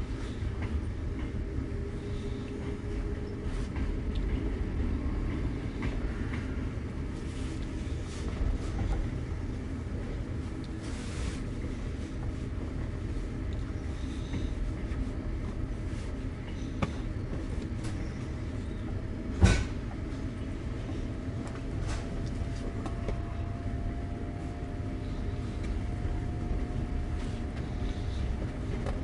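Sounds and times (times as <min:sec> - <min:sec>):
train carriage rumble: 0:00.0 - 0:29.0
faint steady whine: 0:06.6 - 0:29.0.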